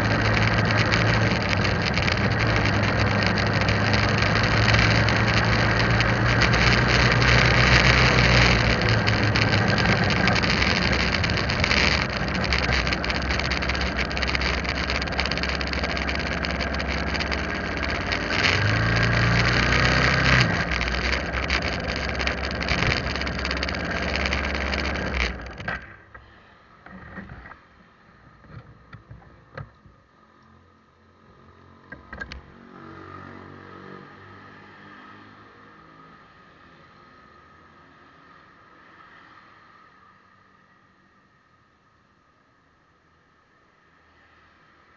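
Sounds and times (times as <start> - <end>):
motorbike engine running: 0.0 - 26.0
small knocks: 0.0 - 27.6
road and wind noise: 0.0 - 44.9.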